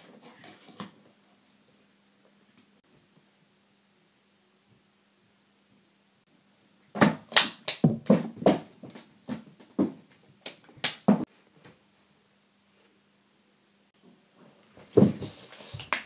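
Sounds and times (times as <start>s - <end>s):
hands clapping: 7.3s - 7.9s, 10.4s - 11.1s, 15.8s - 16.0s.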